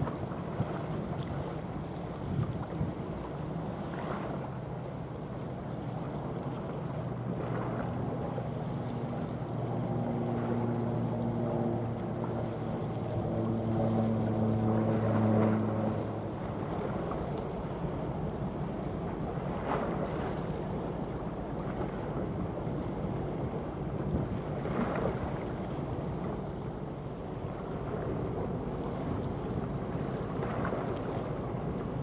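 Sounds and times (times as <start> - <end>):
water rushing: 0.0 - 32.0
ship engine humming: 4.8 - 20.0.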